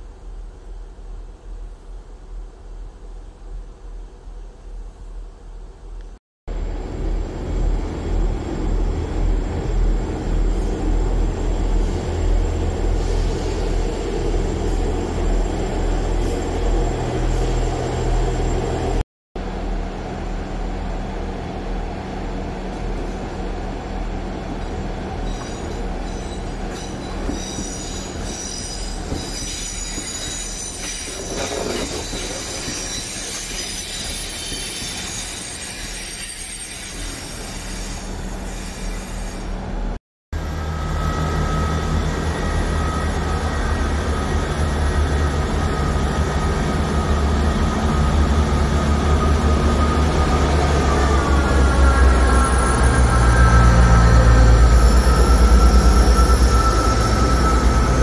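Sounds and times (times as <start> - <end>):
diesel train engine: 0.0 - 58.0
train wheels squealing on rails: 10.2 - 19.0, 25.0 - 39.8, 40.4 - 58.0.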